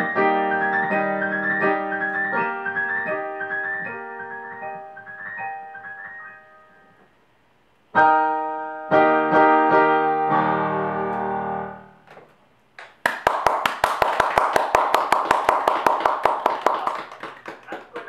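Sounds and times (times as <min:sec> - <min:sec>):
digital piano chords: 0:00.0 - 0:07.0, 0:07.9 - 0:12.1
hand clapping: 0:12.8 - 0:18.0.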